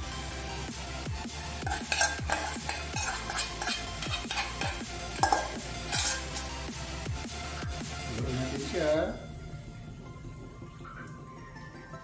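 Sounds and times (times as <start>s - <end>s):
utensil scraping metal pot: 1.5s - 6.8s.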